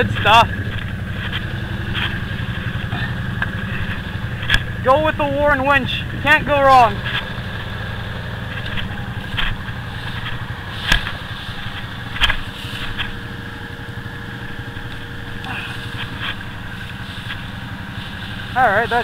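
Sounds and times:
atv engine idling: 0.0s - 19.0s.

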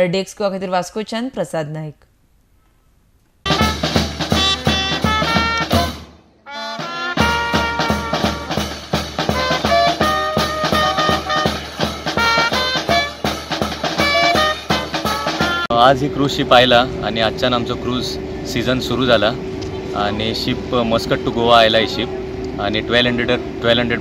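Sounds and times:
steady drum beat: 3.5s - 15.7s
street band playing: 3.5s - 15.8s.

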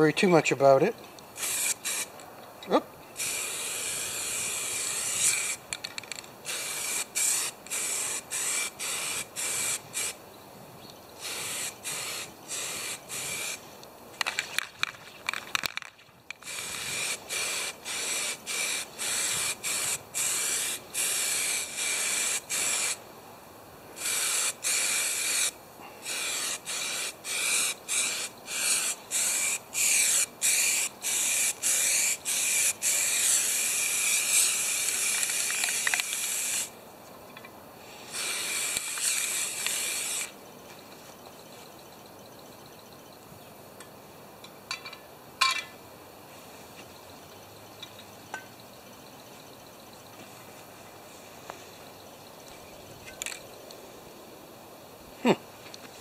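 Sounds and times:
spray paint can hissing: 1.4s - 2.1s, 3.2s - 10.2s, 11.2s - 13.6s, 15.3s - 23.0s, 24.0s - 36.8s, 37.9s - 40.4s.

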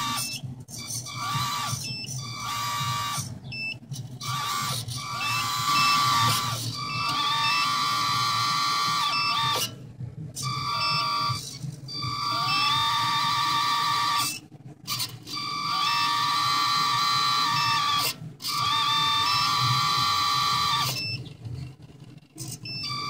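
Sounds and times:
hydraulic pump motor whining: 0.0s - 23.0s.

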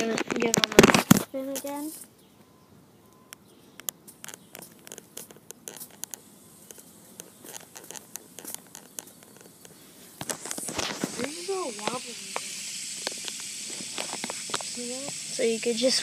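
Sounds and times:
handling clicks and rustles: 3.4s - 11.4s.

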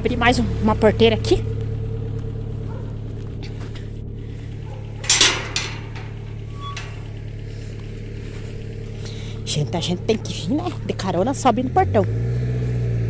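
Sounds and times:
steady low hum: 0.0s - 11.8s
metal gate clanking rattle: 3.4s - 11.0s.

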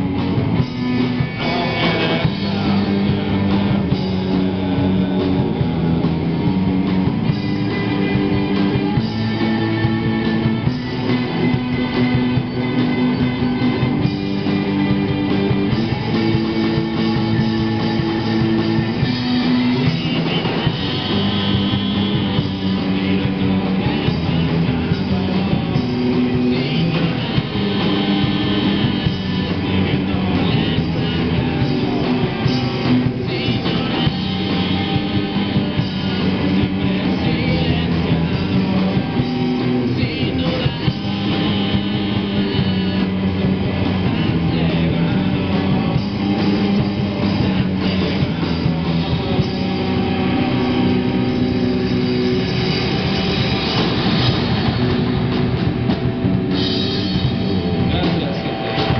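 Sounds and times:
drum kit: 0.0s - 58.9s
electric bass: 0.0s - 58.9s
electric guitars: 0.0s - 58.9s.

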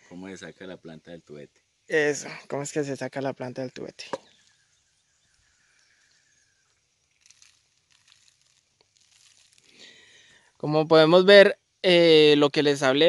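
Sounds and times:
faint rustles: 4.2s - 10.5s.

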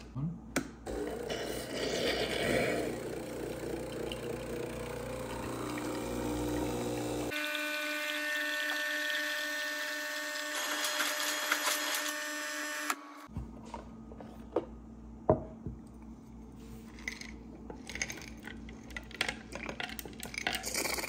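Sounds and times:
espresso machine pump buzzing: 0.9s - 13.0s
liquid streaming into glass mug: 2.6s - 7.3s.

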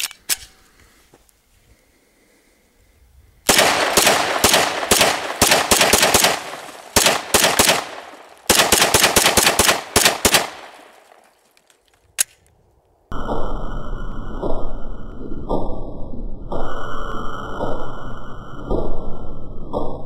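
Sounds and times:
pistol shots with echo: 3.5s - 11.3s.

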